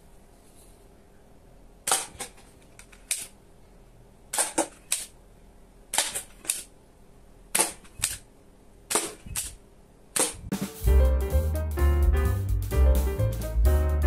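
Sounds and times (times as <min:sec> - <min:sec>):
toy gun firing sharp snaps: 0:07.5 - 0:08.2, 0:08.9 - 0:09.6, 0:10.2 - 0:10.5.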